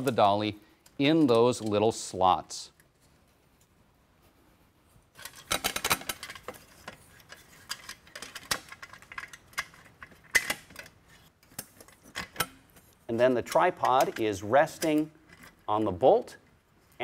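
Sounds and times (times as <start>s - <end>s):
metal clicks and rattles: 5.2s - 15.9s.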